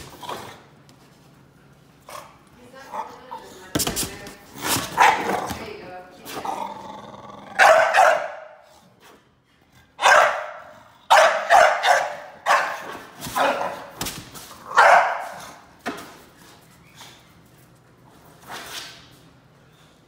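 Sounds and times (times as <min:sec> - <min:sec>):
puppy play barks: 0:04.9 - 0:05.6, 0:07.6 - 0:08.5, 0:10.0 - 0:13.9.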